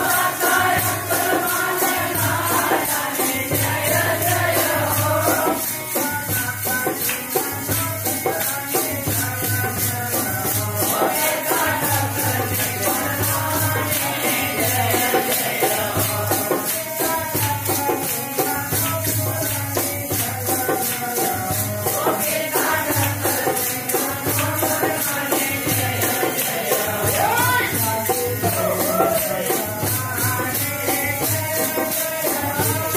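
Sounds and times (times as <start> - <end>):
group singing devotional song: 0.0 - 32.9
jingling hand percussion: 0.0 - 32.9.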